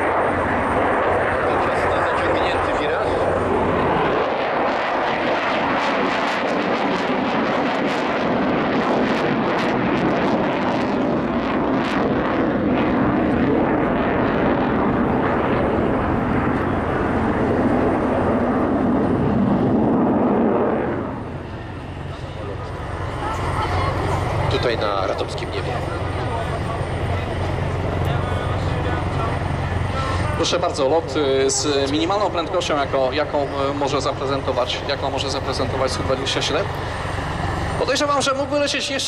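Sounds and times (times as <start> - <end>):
jet engines roaring: 0.0 - 39.0.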